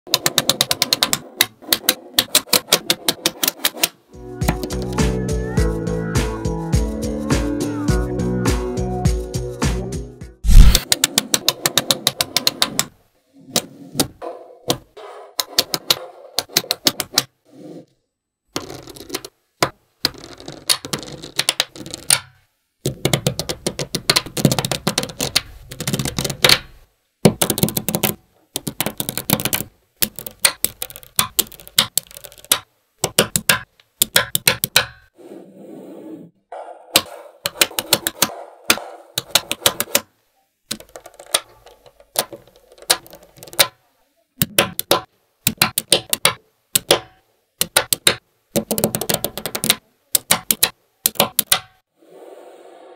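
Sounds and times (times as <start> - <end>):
magnetic balls clicking together: 0.1 - 5.0, 10.5 - 14.8, 15.4 - 17.3, 18.5 - 35.1, 37.0 - 40.1, 40.7 - 43.8, 44.4 - 51.8.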